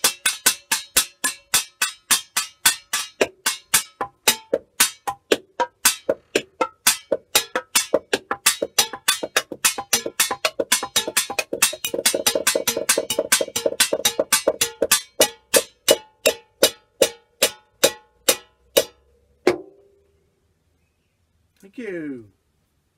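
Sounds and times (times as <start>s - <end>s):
scrap percussion struck with sticks: 0.0s - 19.9s.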